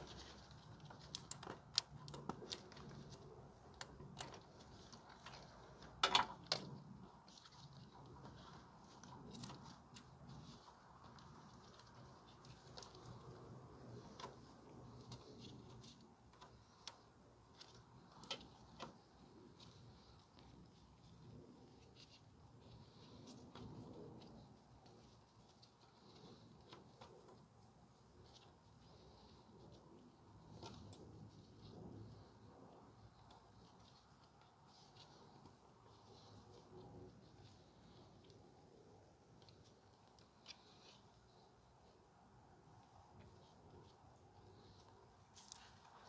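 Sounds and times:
plastic wire harness clicking: 0.0 - 13.2.

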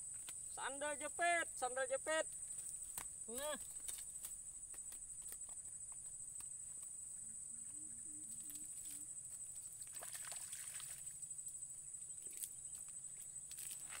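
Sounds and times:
insects droning: 0.0 - 14.0
rustle and slosh of wet grass: 8.7 - 11.2, 13.5 - 14.0.

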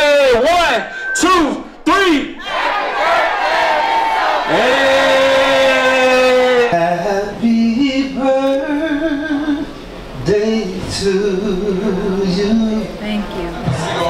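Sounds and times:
man singing into a microphone: 5.9 - 13.0.

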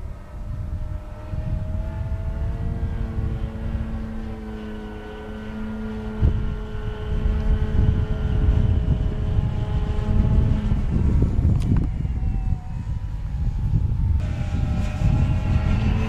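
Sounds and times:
model plane motor droning: 0.0 - 16.0
wind rumble on microphone: 0.0 - 16.0.

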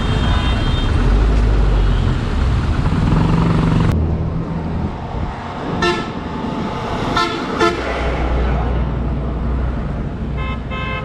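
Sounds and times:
motorcycle: 0.0 - 9.0
road traffic noise: 0.0 - 11.0
vehicle horn toot: 10.4 - 11.0.

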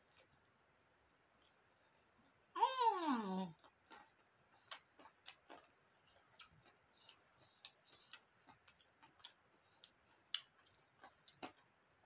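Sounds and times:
mouth clicks of chewing: 3.6 - 11.7.

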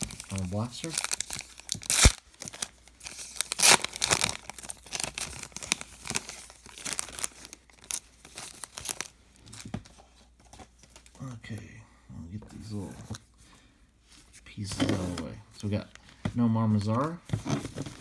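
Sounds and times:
card pack wrapper tearing: 0.0 - 9.1
wrapper crinkling: 0.0 - 9.7.

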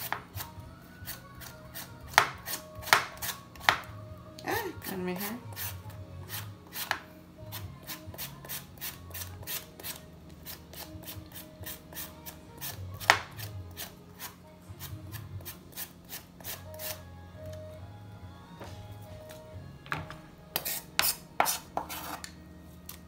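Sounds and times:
knife slicing vegetable: 0.0 - 3.9, 4.8 - 17.0, 20.5 - 22.3.

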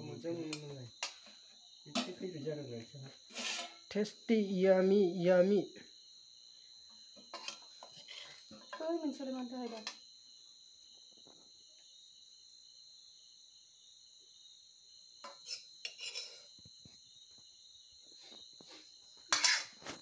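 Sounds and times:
crickets chirping: 0.0 - 20.0
metal spoon scraping steel wok: 3.3 - 3.8, 15.3 - 16.4, 19.3 - 19.8.

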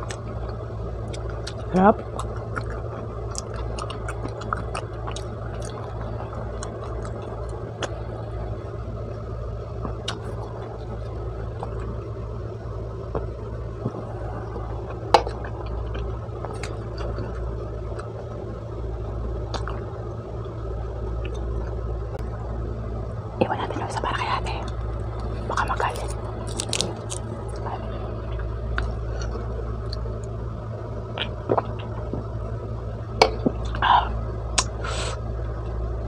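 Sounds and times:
soft chewing: 0.0 - 8.3, 9.8 - 12.0, 13.1 - 18.3, 19.5 - 19.9, 23.4 - 30.4
steady low hum: 0.0 - 36.0.

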